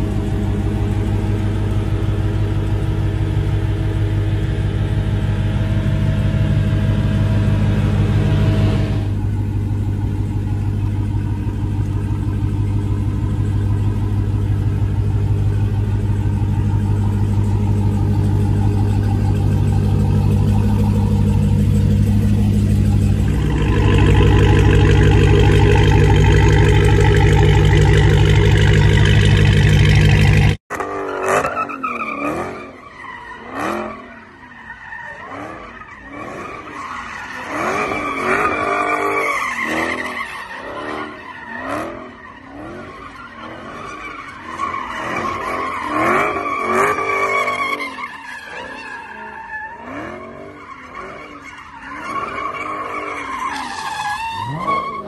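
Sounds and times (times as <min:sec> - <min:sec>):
car engine idling: 0:00.0 - 0:30.6
engine revving: 0:00.0 - 0:32.8.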